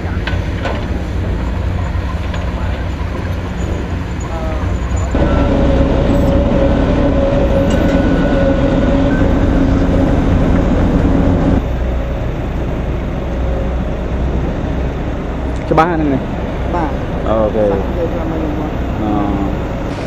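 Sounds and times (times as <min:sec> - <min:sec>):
diesel engine rumble: 0:00.0 - 0:20.0
steady machine hum: 0:05.1 - 0:19.5.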